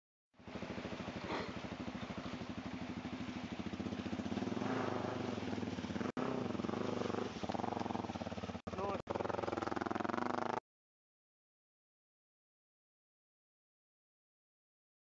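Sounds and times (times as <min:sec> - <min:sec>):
dirt bike engine revving: 0:00.4 - 0:10.6.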